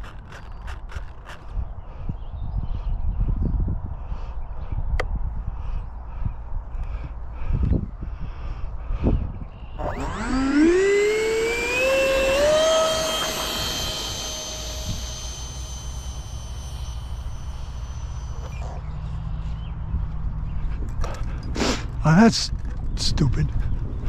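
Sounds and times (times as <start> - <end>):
wind rumble on microphone: 0.0 - 10.4, 22.5 - 24.0
electric ducted fan whine: 9.8 - 20.0.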